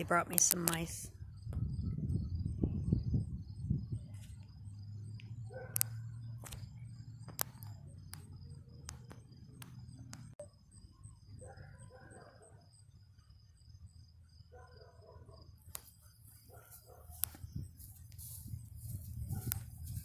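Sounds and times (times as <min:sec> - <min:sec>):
sharp clicks: 0:00.0 - 0:00.9, 0:05.2 - 0:10.4.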